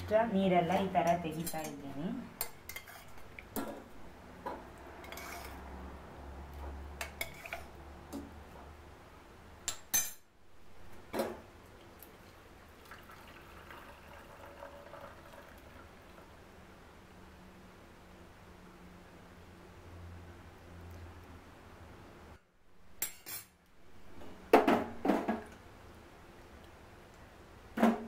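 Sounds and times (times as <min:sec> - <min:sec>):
liquid poured into strainer: 0:12.0 - 0:16.4.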